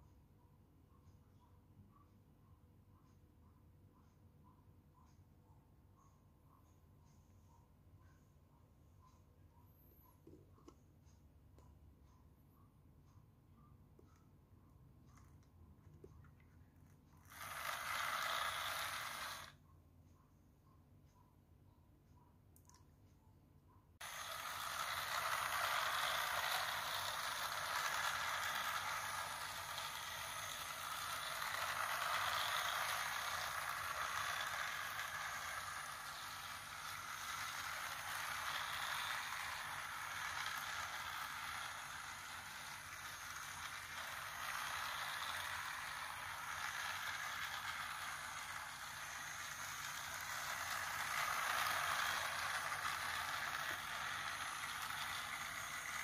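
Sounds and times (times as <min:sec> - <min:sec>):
toy train running on track: 0:17.2 - 0:19.6, 0:24.0 - 0:56.0.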